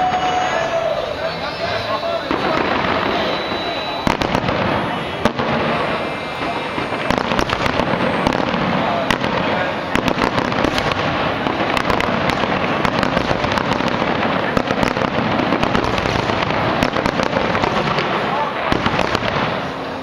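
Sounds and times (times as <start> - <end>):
fireworks bursting: 0.0 - 20.0.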